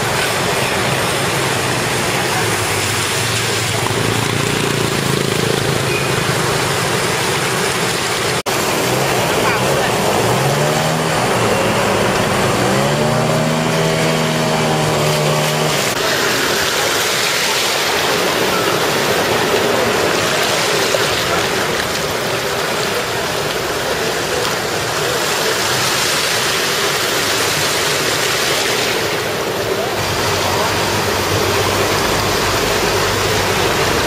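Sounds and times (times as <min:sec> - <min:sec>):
floodwater rushing and splashing: 0:00.0 - 0:34.0
vehicle engine humming: 0:00.0 - 0:34.0.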